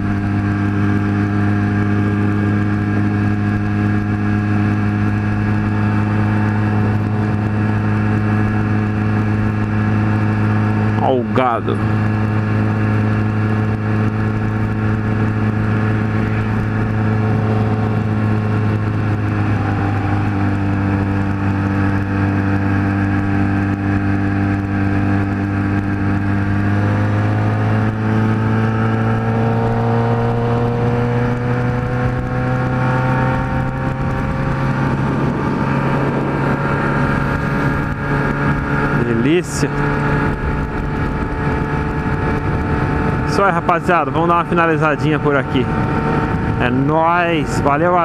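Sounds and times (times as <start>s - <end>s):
motorcycle engine cruising: 0.0s - 48.0s.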